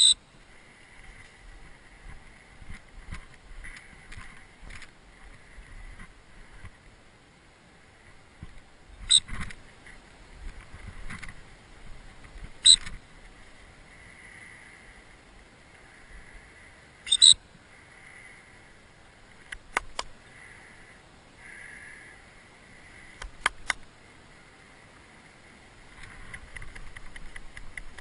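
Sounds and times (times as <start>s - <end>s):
faint steady hiss: 0.0s - 28.0s
shrill training whistle blasts: 17.1s - 17.4s.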